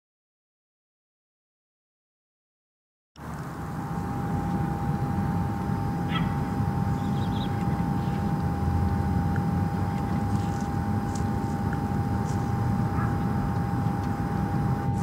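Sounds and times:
low outdoor rumble: 0:03.2 - 0:15.0
thin hum: 0:03.2 - 0:15.0
faint chirps: 0:05.9 - 0:08.4.

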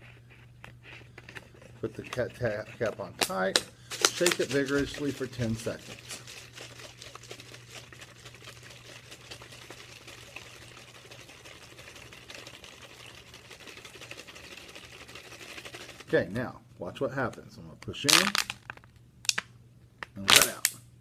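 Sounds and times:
low steady hum: 0:00.0 - 0:21.0
water sloshing in shaken bottle: 0:03.9 - 0:16.3.

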